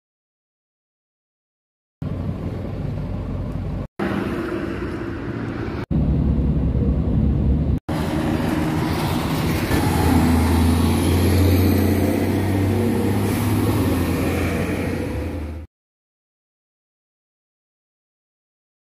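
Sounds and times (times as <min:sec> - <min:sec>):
trucks passing: 0:02.0 - 0:15.7
vehicle engine drone passing: 0:02.0 - 0:15.7.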